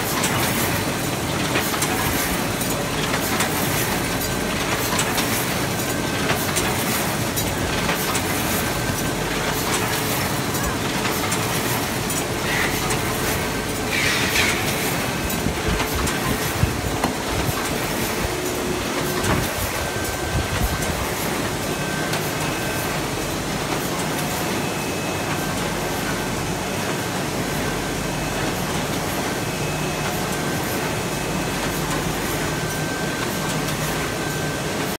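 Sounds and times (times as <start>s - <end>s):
paper bag machine running: 0.0s - 21.6s.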